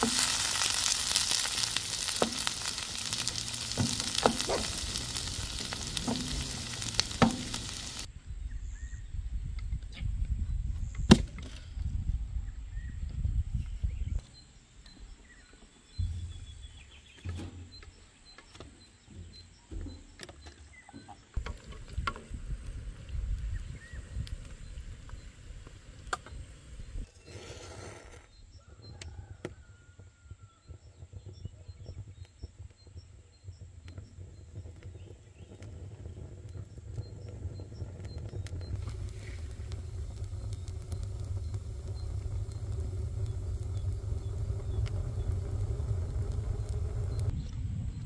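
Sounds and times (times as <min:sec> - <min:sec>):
fire crackles and snaps: 0:00.0 - 0:08.1, 0:21.4 - 0:27.1, 0:28.6 - 0:48.0
wood fire rumbling: 0:00.0 - 0:08.2, 0:21.4 - 0:27.1, 0:27.7 - 0:48.0
birds chirping faintly: 0:11.7 - 0:48.0.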